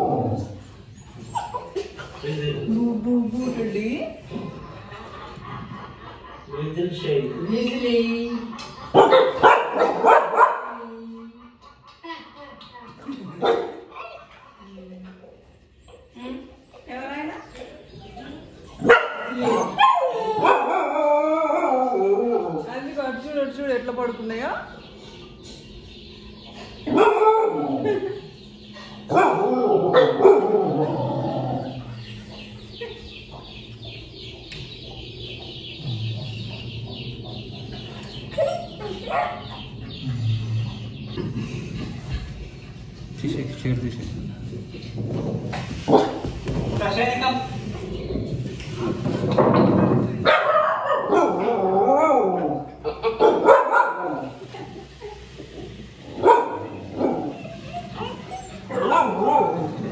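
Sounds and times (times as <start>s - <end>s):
dogs barking and yipping: 0.0s - 2.2s, 8.8s - 12.0s, 15.4s - 22.8s, 24.8s - 43.1s, 44.5s - 46.8s, 47.6s - 59.9s
puppies yelping and whining: 0.0s - 2.3s, 13.9s - 22.8s, 24.9s - 43.0s, 54.0s - 59.9s.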